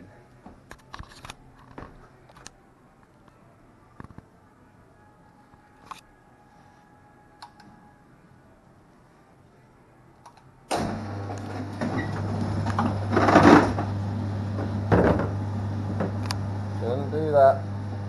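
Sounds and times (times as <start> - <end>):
machine motor hum: 10.7 - 18.0.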